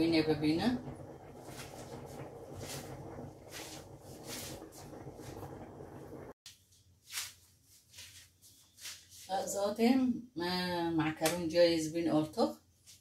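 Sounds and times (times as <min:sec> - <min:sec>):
rustling and handling noises: 0:06.5 - 0:09.7.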